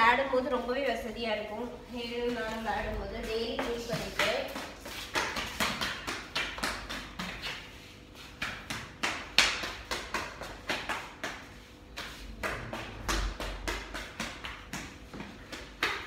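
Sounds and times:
toddler running on tiled floor: 8.3s - 16.0s.

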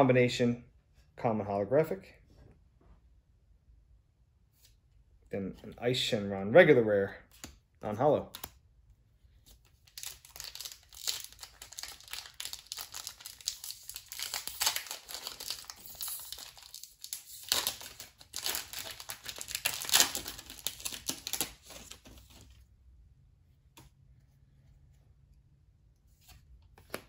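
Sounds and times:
wrapper tearing and crinkling: 9.8s - 22.4s.

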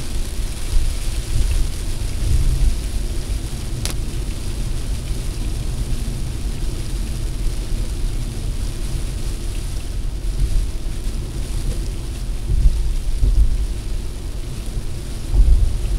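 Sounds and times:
rain hissing on windshield: 0.0s - 15.9s
road and wind rumble: 0.0s - 15.9s.

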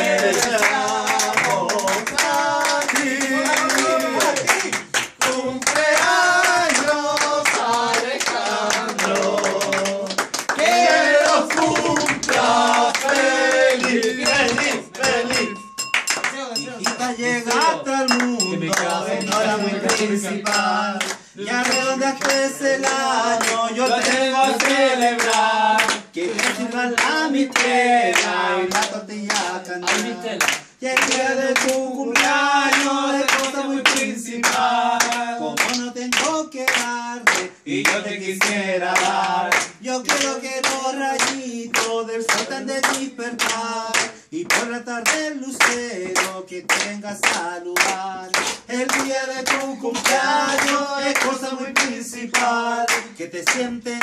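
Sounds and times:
group singing in unison: 0.0s - 15.8s, 16.6s - 54.0s
people clapping along: 0.0s - 54.0s.

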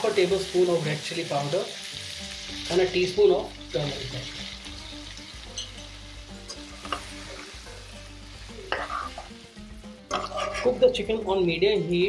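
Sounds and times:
chicken sizzling in hot oil: 0.0s - 11.0s
spoon knocking against pan: 6.5s - 7.1s.

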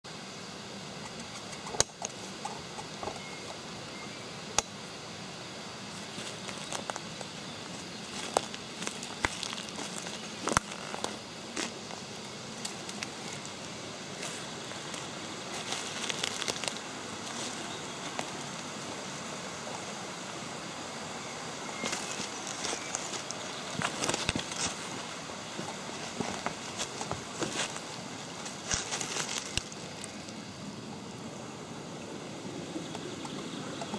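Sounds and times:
steady background hiss: 0.0s - 33.9s
twigs and dry leaves crackling: 5.9s - 20.0s, 21.7s - 30.5s
footsteps on forest floor: 6.0s - 12.0s, 12.8s - 18.7s, 21.8s - 29.9s.

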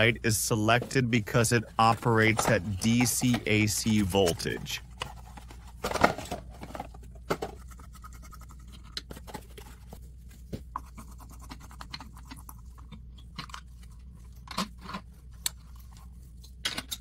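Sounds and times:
bulbs scratching and clicking in sockets: 1.4s - 5.7s, 7.0s - 10.0s, 10.8s - 17.0s.

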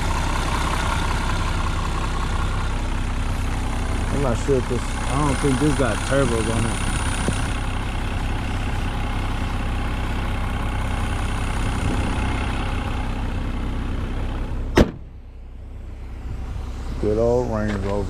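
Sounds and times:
car engine idling: 0.0s - 18.0s
car hood thumping shut: 14.7s - 15.1s.

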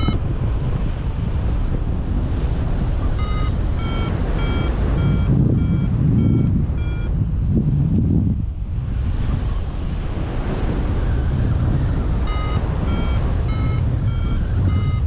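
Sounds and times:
variometer short beeps: 0.0s - 0.3s, 3.0s - 7.3s, 12.2s - 15.0s
wind rush on microphone: 0.0s - 15.0s.

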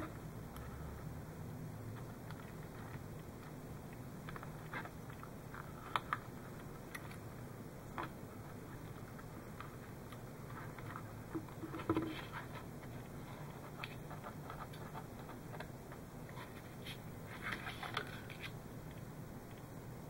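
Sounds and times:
wires and plastic parts rustling: 1.9s - 3.6s, 7.9s - 19.0s.

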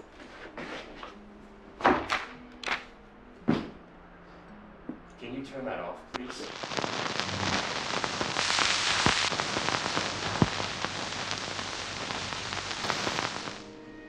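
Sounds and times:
crackling hiss with sharp clicks: 6.1s - 13.7s.

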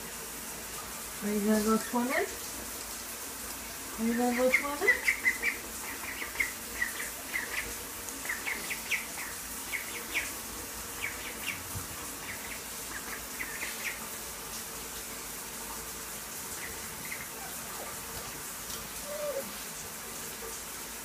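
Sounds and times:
ducklings peeping: 4.1s - 14.1s, 16.5s - 18.4s.

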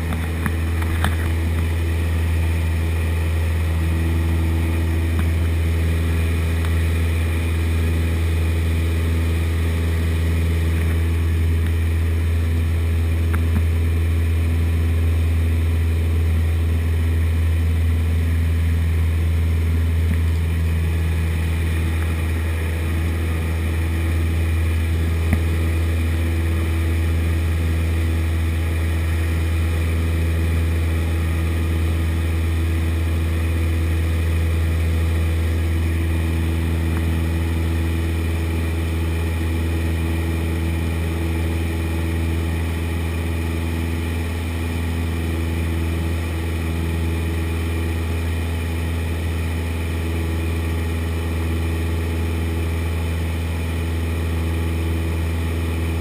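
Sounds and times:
light aircraft engine drone: 0.0s - 56.0s.

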